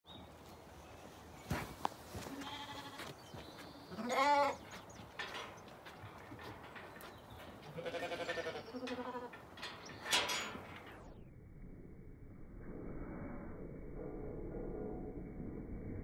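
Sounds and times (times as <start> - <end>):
sheep bleating: 2.2 - 3.1, 3.9 - 4.6, 7.6 - 9.4.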